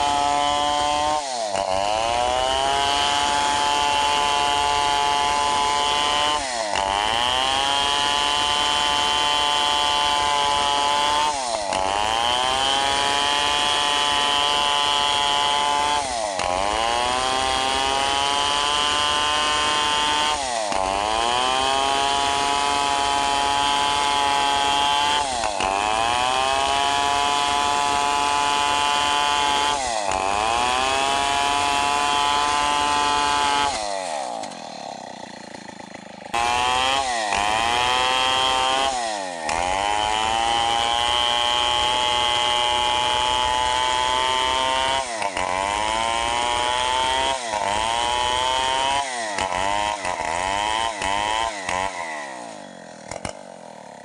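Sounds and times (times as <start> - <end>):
chainsaw cutting through log: 0.0 - 54.0.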